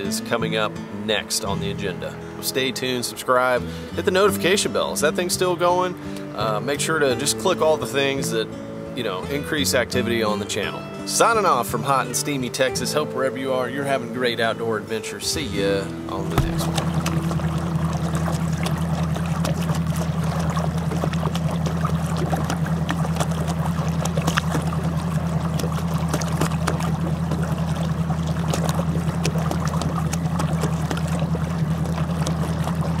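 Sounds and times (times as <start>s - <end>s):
boat motor humming: 0.0s - 33.0s
water lapping against hull: 0.0s - 33.0s.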